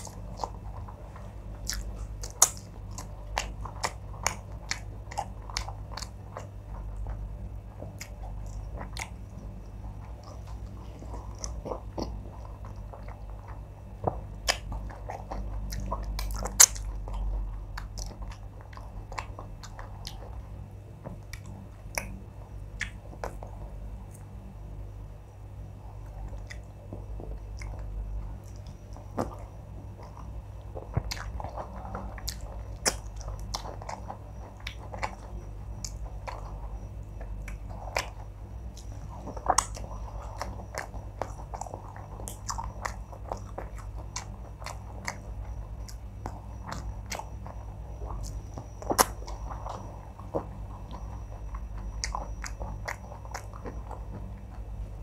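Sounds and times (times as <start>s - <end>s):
person chewing: 0.0s - 20.4s, 21.0s - 24.3s, 25.9s - 55.0s
fingers squishing soft food: 0.0s - 55.0s
mouth clicks and smacks: 22.8s - 23.5s.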